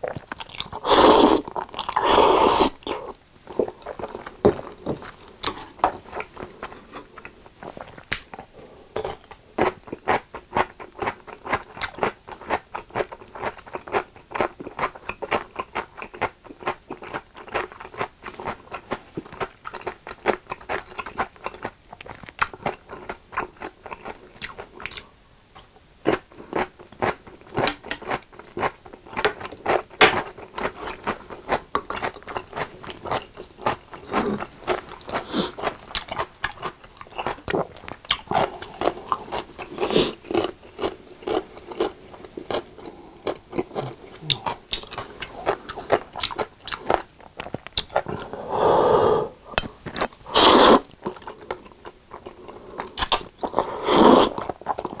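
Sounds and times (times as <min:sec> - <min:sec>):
pickles being bitten and chewed: 0:25.6 - 0:48.2.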